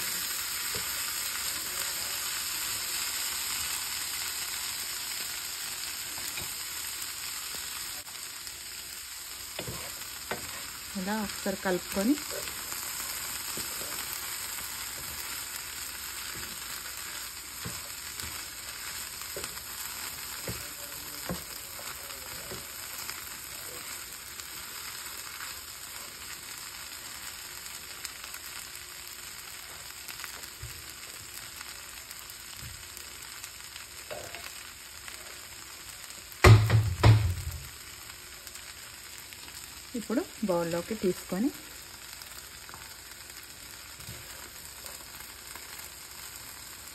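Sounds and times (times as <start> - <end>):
beans sizzling in a pan: 0.0 - 46.9
wooden spatula scraping and tapping: 9.5 - 10.8, 16.2 - 19.7, 20.3 - 22.7.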